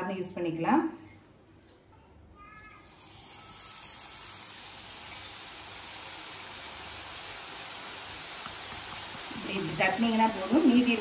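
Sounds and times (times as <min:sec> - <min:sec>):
batter sizzling in oil: 0:02.9 - 0:11.0.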